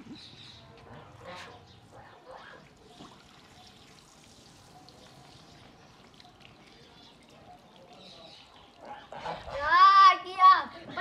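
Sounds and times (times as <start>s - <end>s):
water trickling onto concrete: 2.4s - 10.4s.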